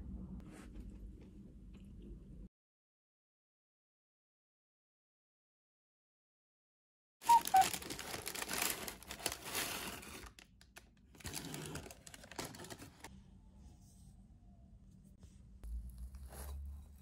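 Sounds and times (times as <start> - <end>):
wrapping rustling and crumpling: 7.2 - 13.1.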